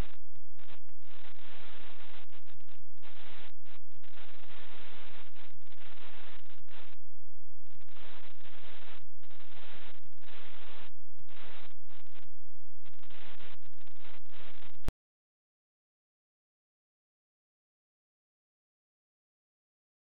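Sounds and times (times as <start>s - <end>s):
bursts of static: 0.0s - 14.9s
low electrical hum: 0.0s - 14.9s.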